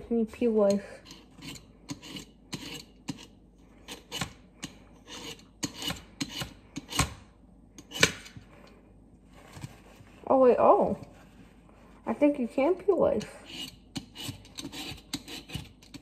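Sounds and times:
peeler scraping ice: 0:00.4 - 0:07.2, 0:13.1 - 0:16.0.

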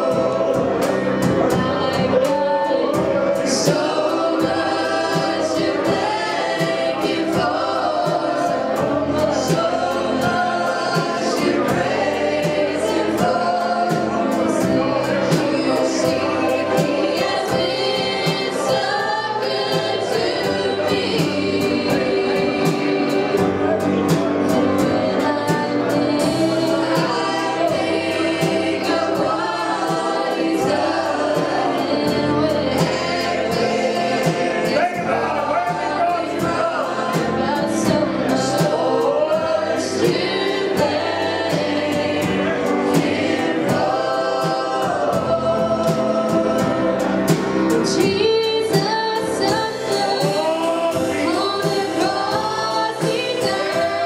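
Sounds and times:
drums and cymbals beat: 0:00.0 - 0:54.0
group singing gospel: 0:00.0 - 0:54.0
live band: 0:00.0 - 0:54.0.

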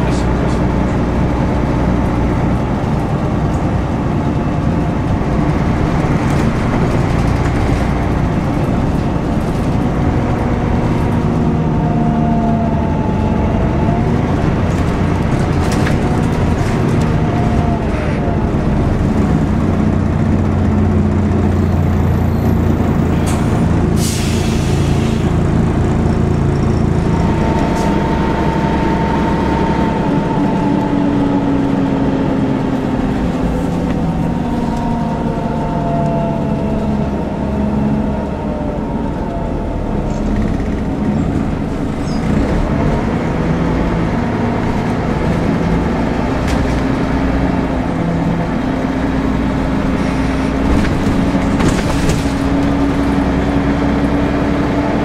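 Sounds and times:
drivetrain whine: 0:00.0 - 0:23.9, 0:25.2 - 0:55.0
bus diesel engine running: 0:00.0 - 0:55.0
air brake hiss: 0:23.3 - 0:25.3.

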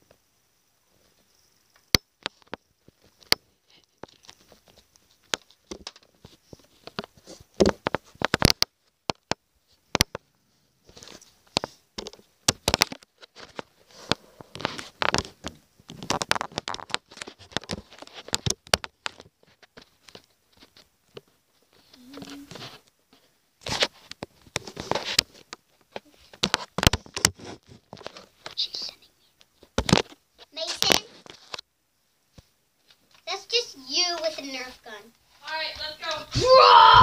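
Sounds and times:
sharp clicks and knocks: 0:10.9 - 0:13.7.

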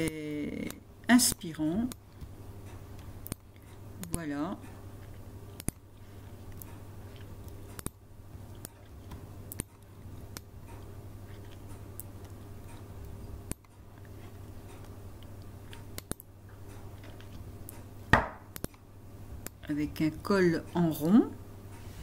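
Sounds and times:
low electrical hum: 0:00.0 - 0:22.0
computer mouse clicking: 0:00.6 - 0:04.2, 0:05.0 - 0:05.9, 0:06.5 - 0:15.0, 0:15.6 - 0:17.9, 0:18.5 - 0:18.8.

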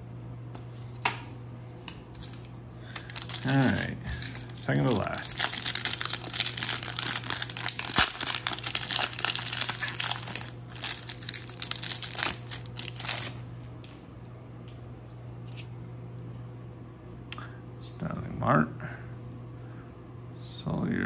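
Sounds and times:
foil wrapper crinkling and tearing: 0:02.2 - 0:13.4
cards ticking: 0:02.9 - 0:13.3.

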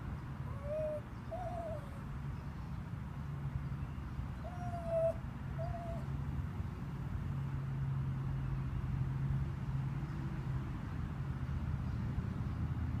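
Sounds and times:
cooing animal calls: 0:00.4 - 0:02.0, 0:04.4 - 0:06.1.

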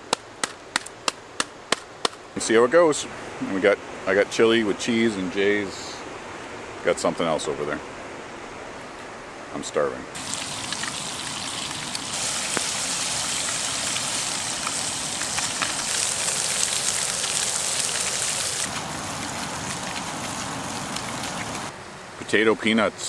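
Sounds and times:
fish sizzling in a pan: 0:10.2 - 0:21.7.

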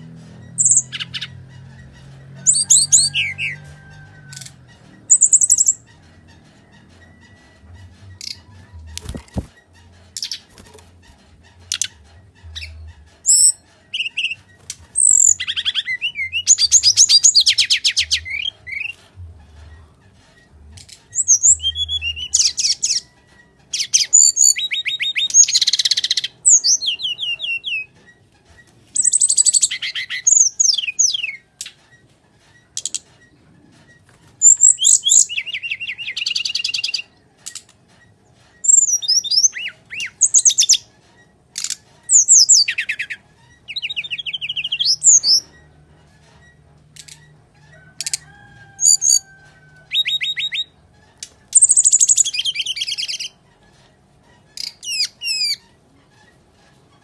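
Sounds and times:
bird singing trills and whistles: 0:00.5 - 0:01.4, 0:05.1 - 0:05.9, 0:11.6 - 0:19.0, 0:21.1 - 0:23.1, 0:23.7 - 0:28.0, 0:28.9 - 0:31.8, 0:34.4 - 0:37.1, 0:38.6 - 0:40.9, 0:41.6 - 0:45.5, 0:48.8 - 0:50.8, 0:51.5 - 0:53.4, 0:54.6 - 0:55.6.

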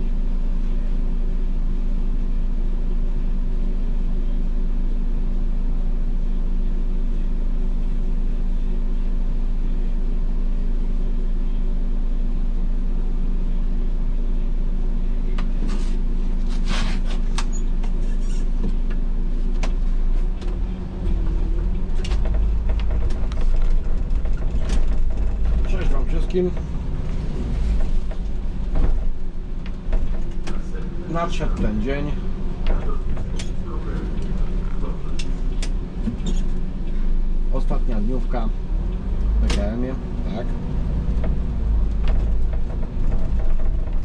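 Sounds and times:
bus diesel engine idling: 0:00.0 - 0:44.0
bus engine rumble pulling away: 0:00.0 - 0:44.0.

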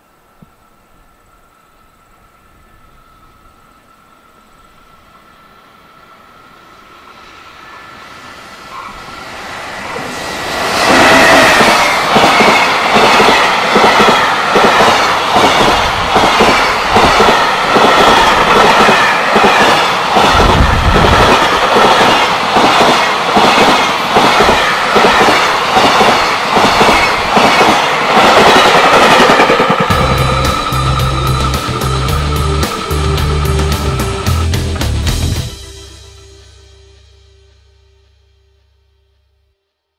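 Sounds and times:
train wheels clickety-clack: 0:08.6 - 0:35.6.

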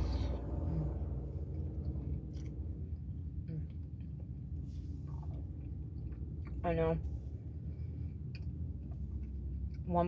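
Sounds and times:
low rumble inside a car: 0:00.0 - 0:10.0
person chewing food: 0:01.5 - 0:06.6, 0:07.5 - 0:09.9.

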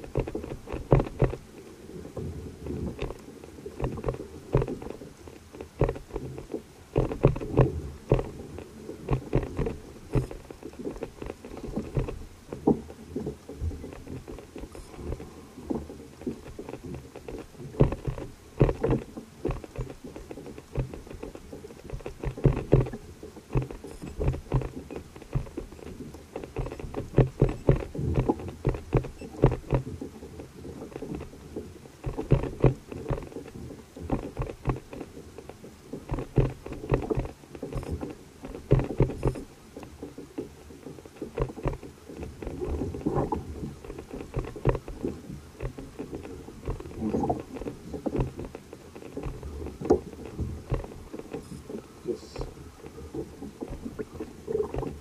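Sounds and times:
water slapping against kayak hull: 0:00.0 - 0:55.0.

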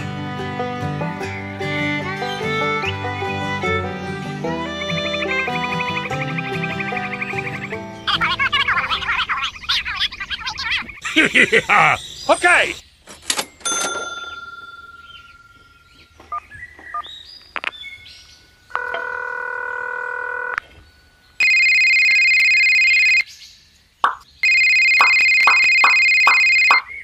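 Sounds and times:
electronic chime ring: 0:21.4 - 0:23.2, 0:24.4 - 0:26.8
shrill trilling electronic tones: 0:21.4 - 0:23.2, 0:24.4 - 0:26.8.

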